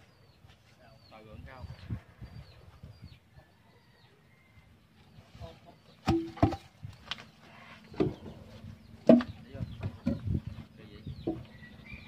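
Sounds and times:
wooden logs knocking: 0:06.0 - 0:06.8, 0:09.0 - 0:10.4.

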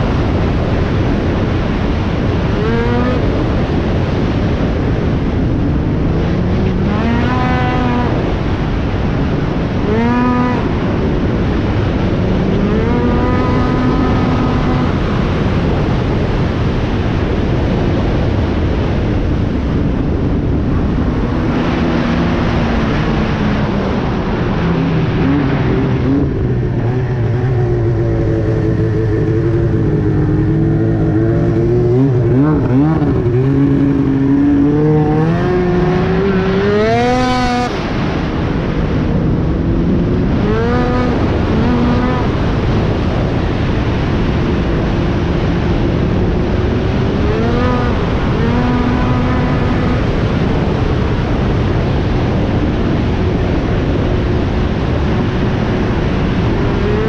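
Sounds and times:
snowmobile engine revving: 0:02.4 - 0:04.4, 0:06.1 - 0:11.7, 0:12.4 - 0:15.8, 0:20.7 - 0:38.5, 0:39.7 - 0:51.7, 0:56.0 - 0:57.0.

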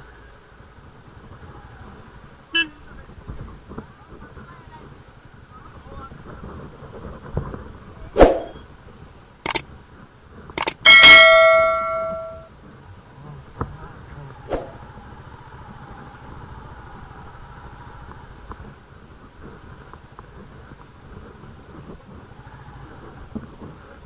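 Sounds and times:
sharp knocks: 0:10.6 - 0:12.5
metal bell ringing: 0:10.9 - 0:12.5.

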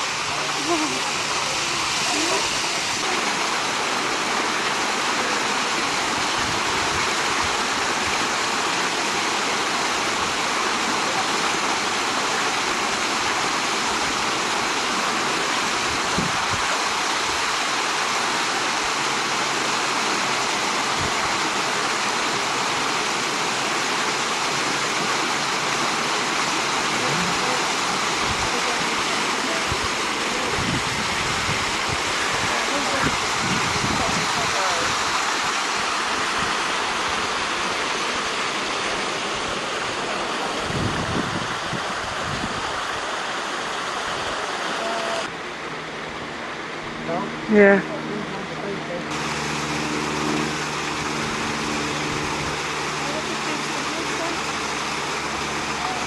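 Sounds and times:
water pouring down waterfall: 0:00.0 - 0:56.0.

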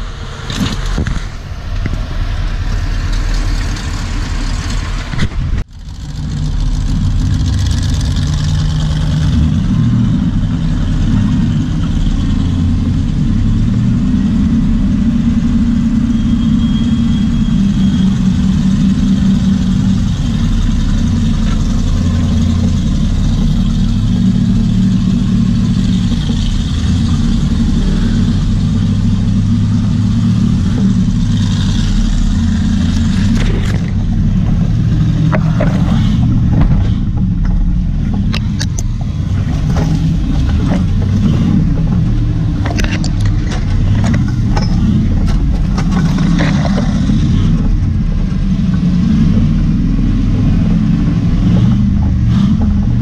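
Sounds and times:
engine rumbling at low revs: 0:00.0 - 0:53.0.

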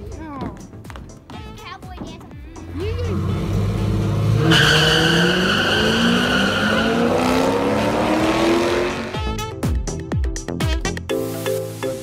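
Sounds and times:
tyres squealing: 0:02.6 - 0:09.0
car engine accelerating: 0:02.6 - 0:09.3
music with heavy beat: 0:09.2 - 0:12.0.

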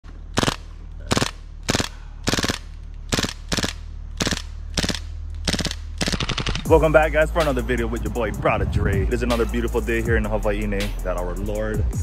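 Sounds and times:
airsoft gun full-auto bursts: 0:00.3 - 0:06.7.

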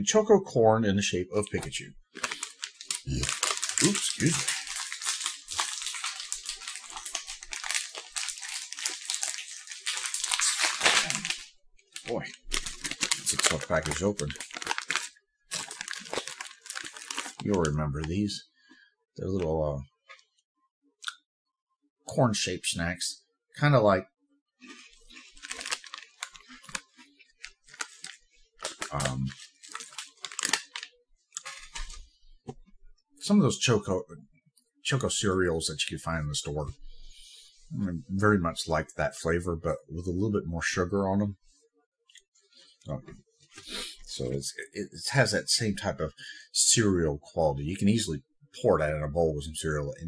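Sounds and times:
snack wrapper crackling: 0:02.1 - 0:17.8, 0:24.6 - 0:32.0.

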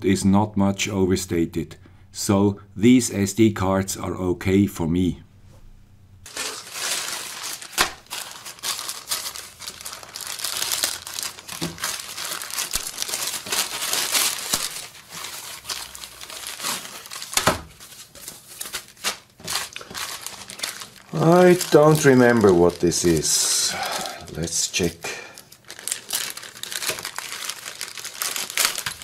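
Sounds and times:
plastic and foam wrap crinkling: 0:06.3 - 0:29.0.

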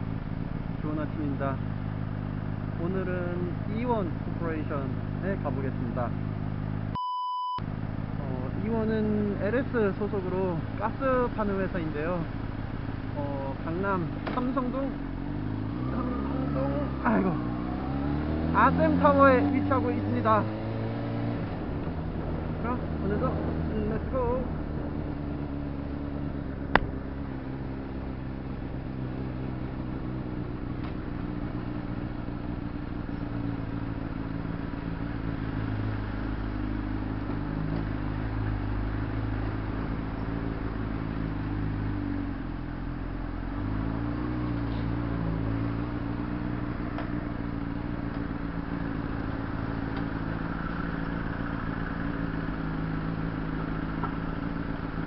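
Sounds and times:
motorcycle engine running: 0:00.0 - 0:06.9, 0:07.7 - 0:55.0
sharp click: 0:26.7 - 0:26.9.

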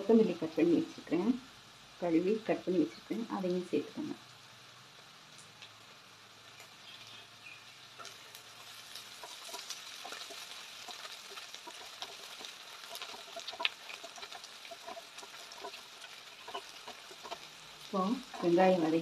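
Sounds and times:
onions sizzling in oil: 0:00.0 - 0:19.0
wooden spatula scraping pan: 0:08.0 - 0:19.0.

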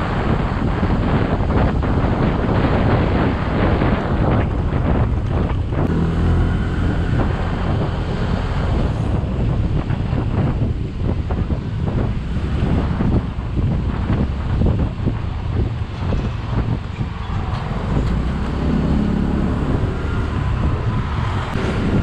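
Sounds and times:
wind buffeting microphone: 0:00.0 - 0:22.0
scooter engine running: 0:04.8 - 0:14.4.

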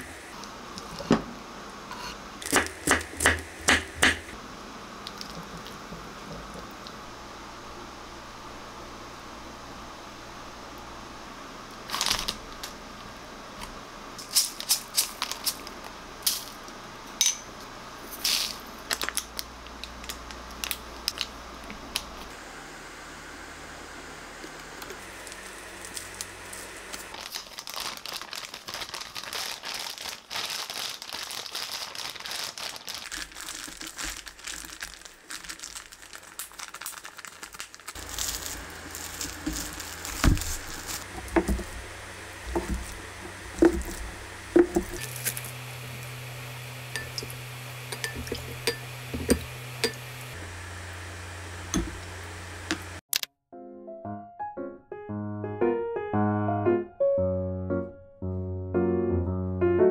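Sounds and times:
plastic crinkling: 0:05.0 - 0:07.0, 0:11.8 - 0:12.8, 0:14.2 - 0:16.7, 0:18.2 - 0:22.3, 0:25.0 - 0:50.4
dishes clinking on counter: 0:17.2 - 0:17.5
quiet hum: 0:37.4 - 0:53.0.

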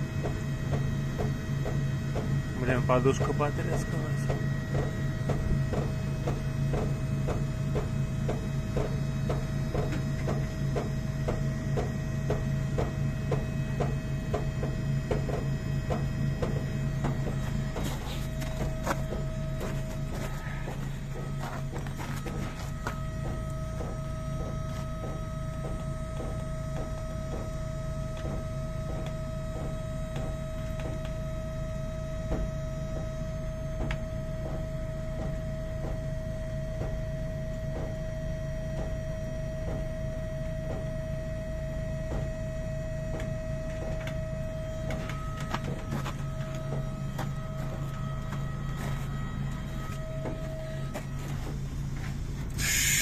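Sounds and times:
diesel engine idling: 0:00.0 - 0:33.8
steady whine: 0:00.0 - 0:53.0.

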